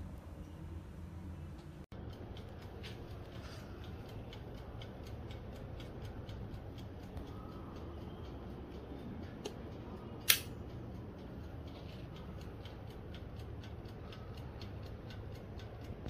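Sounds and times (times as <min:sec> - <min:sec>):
toaster timer ticking: 0:01.6 - 0:16.0
sharp click: 0:10.2 - 0:10.6.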